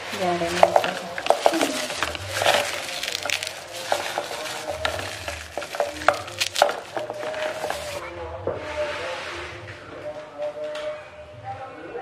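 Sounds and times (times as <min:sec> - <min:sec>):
ice bag knocking on plastic pitcher: 0:00.4 - 0:08.0.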